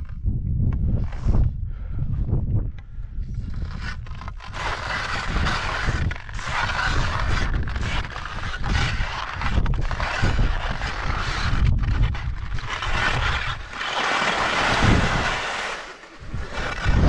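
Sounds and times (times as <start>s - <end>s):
wind rumble on microphone: 0.0s - 15.6s, 16.2s - 17.0s
skis scraping over snow: 3.6s - 17.0s.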